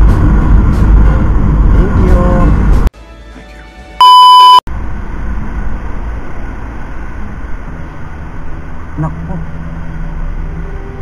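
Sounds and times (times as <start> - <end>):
loud electronic beep: 4.0 - 4.6.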